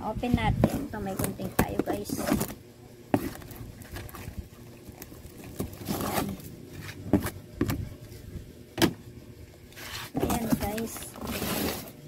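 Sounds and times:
plastic wrap rustling on cardboard: 0.6 - 7.4, 9.7 - 12.0.

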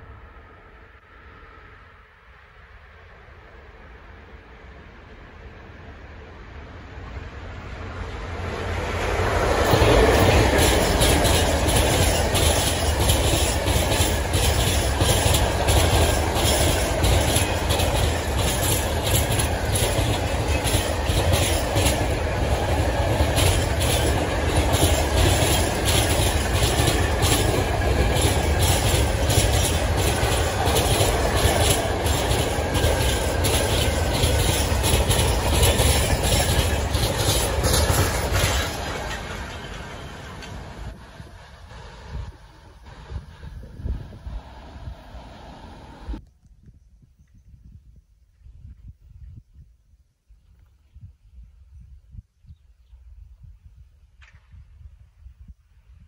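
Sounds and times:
freight train rumbling past: 0.0 - 46.2
wheels clickety-clack on rails: 7.0 - 46.2.

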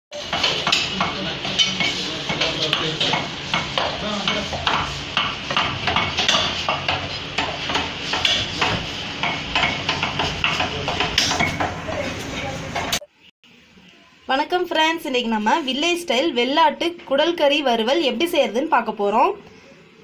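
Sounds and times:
clatter of busy stall: 0.2 - 13.1
cleaver chopping meat on wooden block: 2.3 - 11.8.

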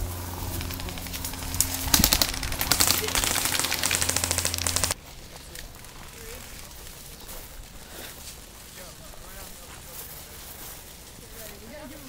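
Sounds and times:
low hum: 0.0 - 7.7
airsoft gun rapid clicking: 0.4 - 5.0.

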